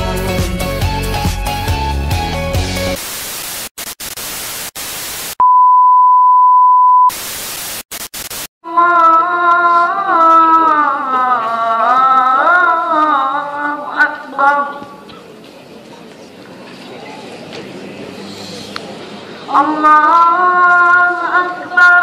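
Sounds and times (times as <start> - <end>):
music: 0.0 - 3.0
tv static hiss: 3.0 - 5.4, 7.1 - 8.5
high test-tone beep: 5.4 - 7.1.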